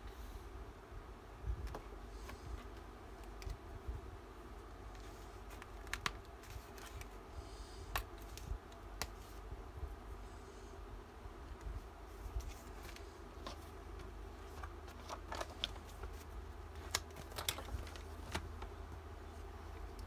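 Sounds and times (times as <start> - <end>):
steady low hum: 0.0 - 20.0
paper rustling: 4.9 - 7.2, 12.1 - 18.8.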